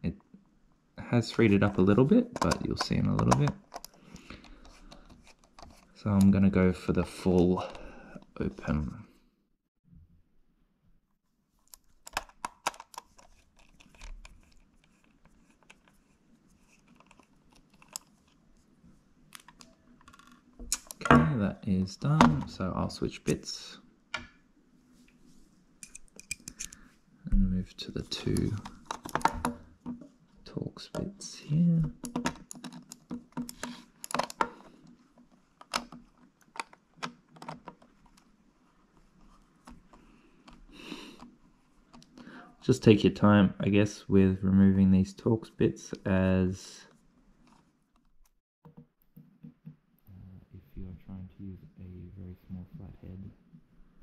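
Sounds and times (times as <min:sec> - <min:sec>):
plastic mouse shell handled: 0:01.4 - 0:06.3, 0:11.6 - 0:18.6, 0:28.0 - 0:30.1, 0:31.8 - 0:42.2
screwdriver clicks and scrapes: 0:25.8 - 0:26.8.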